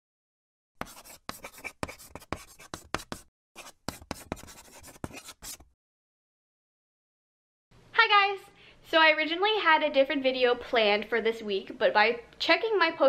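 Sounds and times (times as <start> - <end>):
pen scratching across paper: 0.8 - 5.7.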